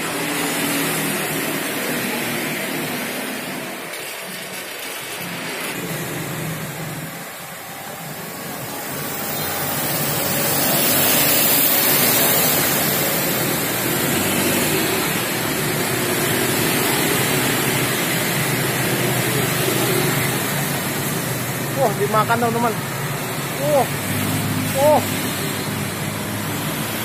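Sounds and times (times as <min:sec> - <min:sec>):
steady rushing noise: 0:00.0 - 0:27.0.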